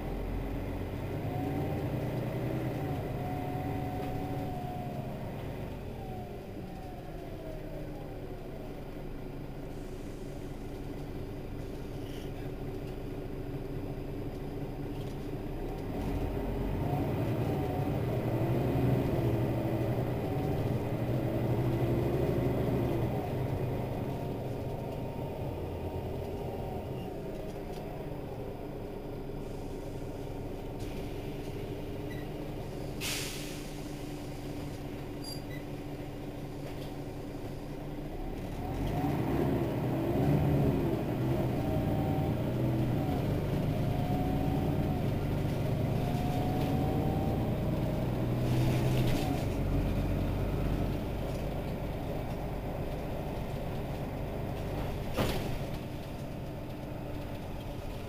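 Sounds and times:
bus diesel engine running: 0:00.0 - 0:58.0
sharp hiss of air: 0:32.9 - 0:34.6.

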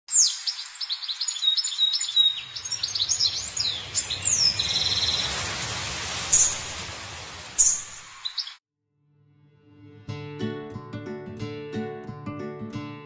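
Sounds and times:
birds chirping and twittering: 0:00.1 - 0:08.6.

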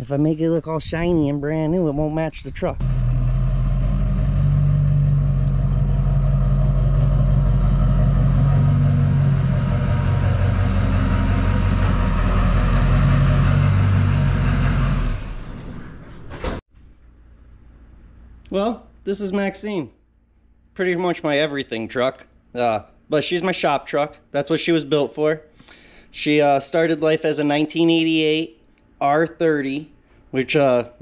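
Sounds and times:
diesel truck engine running: 0:02.8 - 0:16.3.

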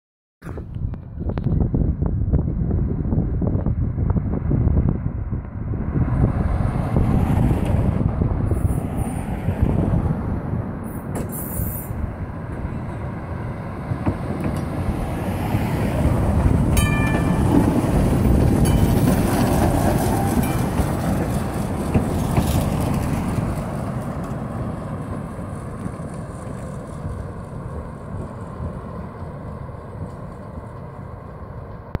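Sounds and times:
passing road traffic: 0:00.4 - 0:32.0
wind on microphone: 0:00.4 - 0:32.0
electric streetcar passing on track: 0:00.8 - 0:32.0.

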